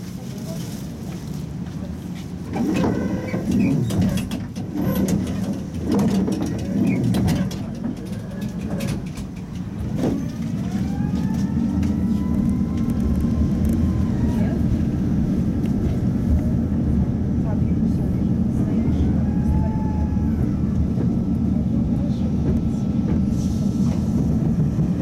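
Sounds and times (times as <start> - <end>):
tram knocks and rattles: 0.0 - 25.0
tram running rumble: 0.0 - 25.0
faint voices: 6.2 - 24.8
rising whine of traction drive: 10.1 - 15.8.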